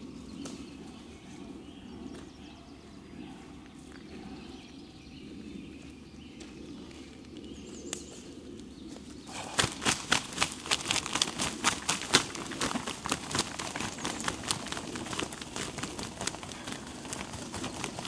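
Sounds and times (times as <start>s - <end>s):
footsteps through leaf litter: 9.3s - 18.0s.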